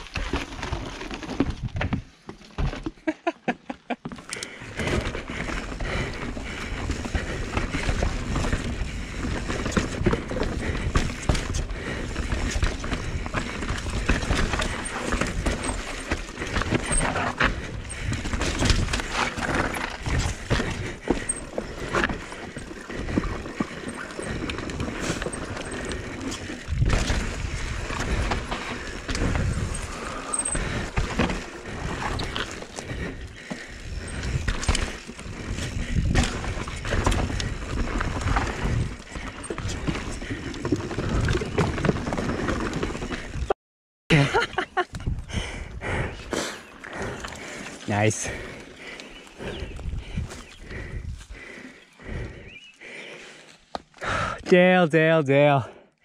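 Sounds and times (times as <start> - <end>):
bike rattling: 0.0 - 3.1, 4.0 - 43.6, 44.2 - 54.4
bike tyres rolling on dirt: 0.0 - 3.1, 4.1 - 43.5, 44.6 - 54.4
bike tyres clattering on boardwalk: 3.8 - 43.4
wind on microphone: 49.4 - 51.3.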